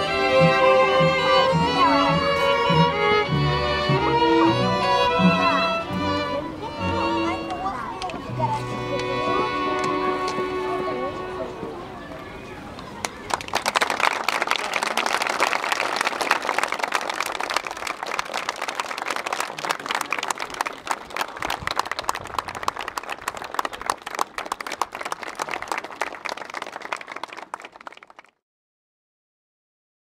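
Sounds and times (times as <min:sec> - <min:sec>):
crowd applauding: 0:13.0 - 0:28.4.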